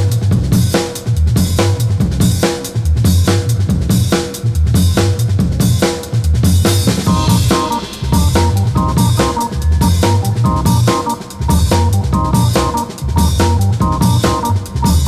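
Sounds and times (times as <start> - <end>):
bass line: 0.0 - 15.0
drum-kit beat: 0.0 - 15.0
higher melody line: 7.1 - 15.0.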